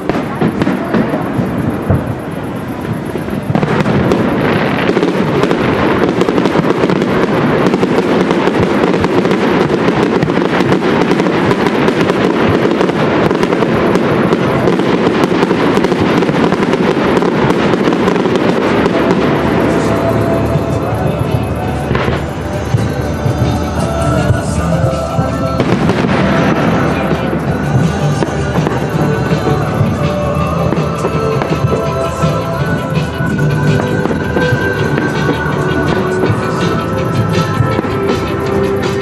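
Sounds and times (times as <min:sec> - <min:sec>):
fireworks crackling: 0:00.0 - 0:39.0.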